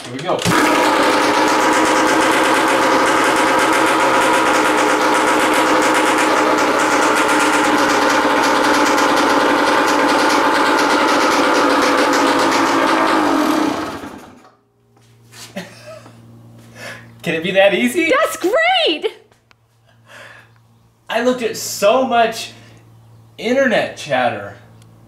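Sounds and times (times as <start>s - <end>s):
dirt bike engine idling: 0.5s - 13.5s.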